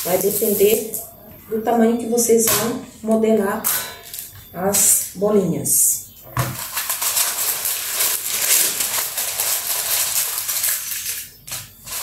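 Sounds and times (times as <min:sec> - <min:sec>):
baking paper crinkling: 0:00.0 - 0:01.0, 0:06.4 - 0:12.0.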